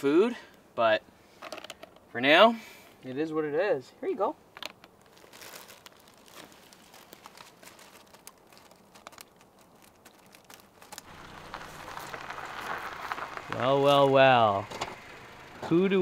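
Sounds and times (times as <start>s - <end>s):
car engine and tyres on gravel: 4.4s - 16.0s
faint clicks and crinkles: 4.6s - 13.7s.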